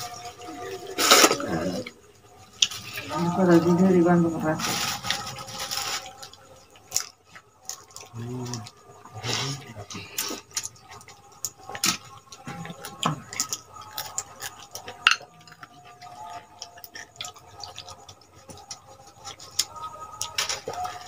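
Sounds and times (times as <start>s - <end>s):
wet eating mouth sounds: 0.0s - 2.0s.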